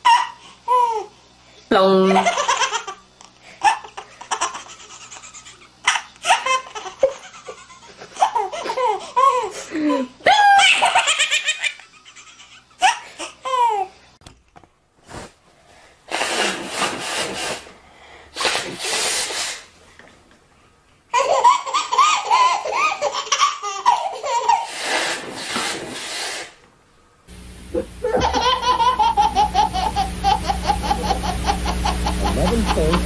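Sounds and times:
babies laughing: 0:00.0 - 0:01.1, 0:02.1 - 0:03.0, 0:03.6 - 0:14.0, 0:21.1 - 0:24.9, 0:28.0 - 0:33.0
short bursts of noise: 0:18.4 - 0:19.7, 0:24.7 - 0:26.6
steady low hum: 0:26.6 - 0:33.0.

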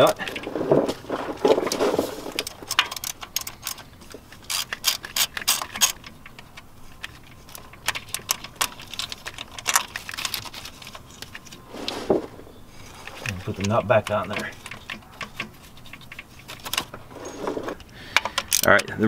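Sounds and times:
hand ratchet clicking: 0:04.5 - 0:06.1.

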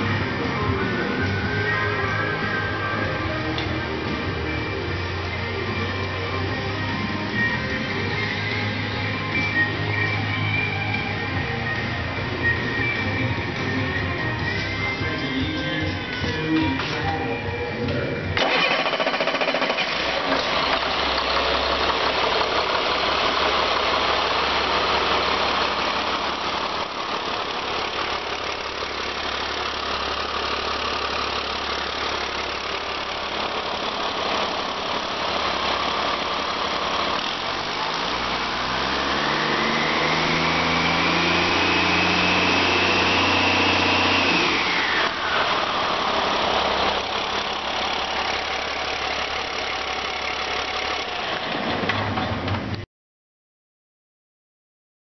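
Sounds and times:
diesel engine idling and revving: 0:00.0 - 0:52.8
high turbocharger whine: 0:18.4 - 0:52.2.

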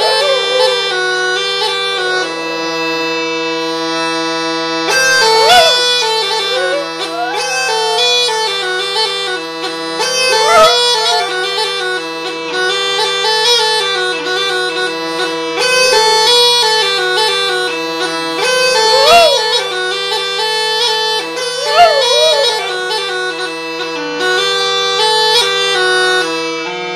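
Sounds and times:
dog howling: 0:00.0 - 0:01.2, 0:05.0 - 0:08.7, 0:10.2 - 0:11.6, 0:18.6 - 0:20.0, 0:21.4 - 0:23.2
bagpipe melody with drone: 0:00.0 - 0:26.9.

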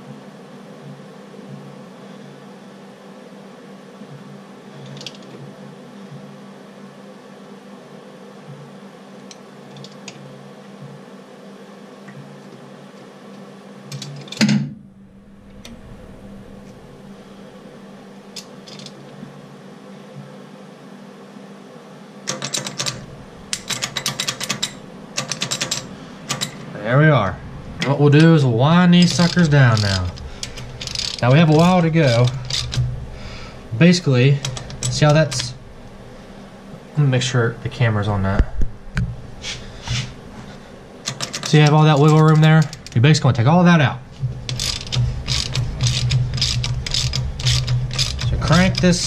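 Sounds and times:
workshop low hum: 0:08.4 - 0:49.0
sharp metallic clicks: 0:22.3 - 0:26.6, 0:29.0 - 0:33.1, 0:34.0 - 0:36.0, 0:44.3 - 0:49.0.

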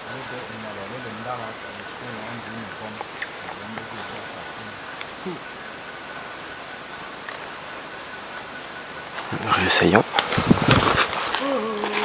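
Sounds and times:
faint hiss: 0:00.0 - 0:12.0
insect chirring: 0:00.0 - 0:12.0.

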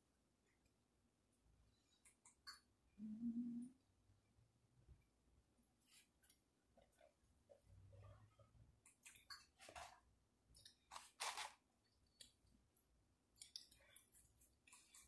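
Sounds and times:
person chewing and swallowing: 0:13.3 - 0:15.0.

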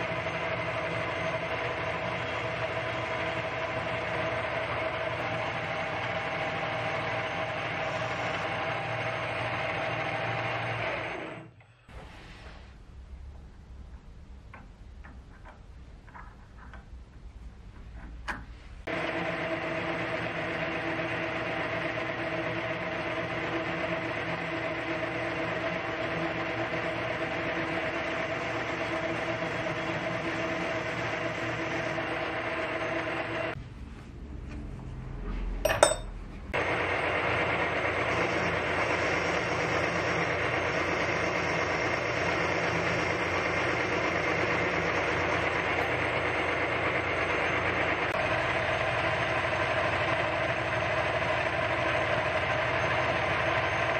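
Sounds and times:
metal lathe cutting aluminium: 0:00.0 - 0:11.4, 0:18.9 - 0:33.5, 0:36.6 - 0:53.9
sharp metal clink: 0:35.7 - 0:36.2.

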